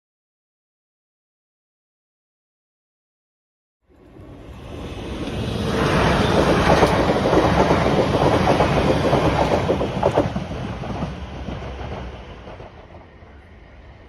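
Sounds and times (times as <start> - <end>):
train wheels clickety-clack: 5.2 - 13.2.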